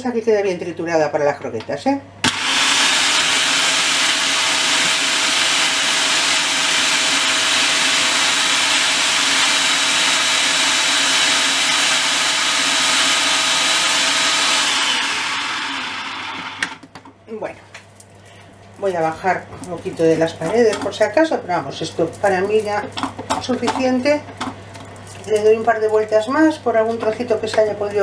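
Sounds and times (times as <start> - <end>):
food processor motor whining: 2.2 - 16.9.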